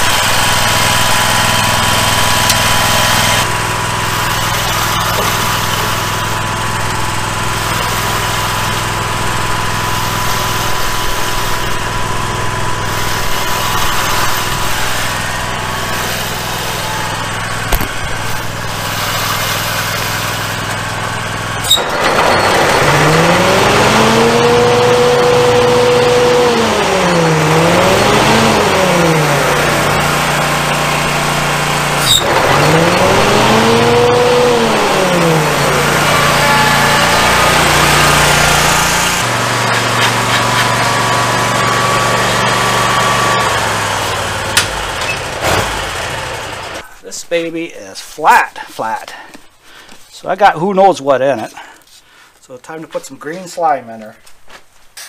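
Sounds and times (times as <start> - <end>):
mower engine running: 0.0 - 46.9
whine climbing in pitch: 2.2 - 45.2.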